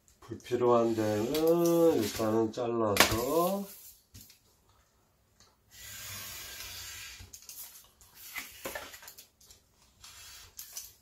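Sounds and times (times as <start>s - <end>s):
craft knife cutting paper on glass: 5.7s - 7.4s.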